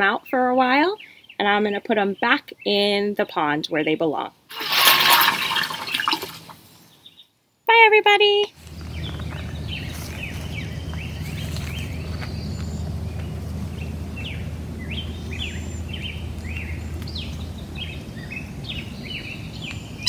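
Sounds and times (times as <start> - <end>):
birds chirping: 8.4 - 20.0
low background hum: 8.5 - 20.0.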